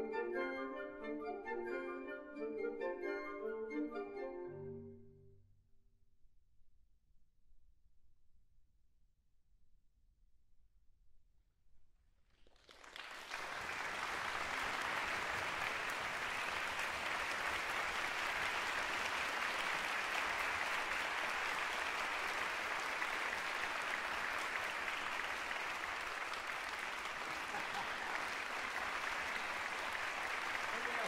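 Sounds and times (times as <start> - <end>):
audience applause: 12.4 - 31.0.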